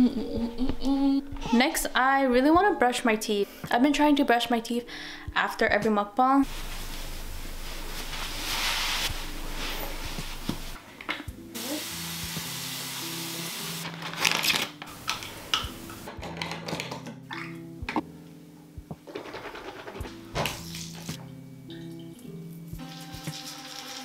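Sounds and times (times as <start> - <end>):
soft background music: 0.0 - 6.6, 8.0 - 24.0
steady hiss: 6.5 - 10.8, 11.6 - 13.9.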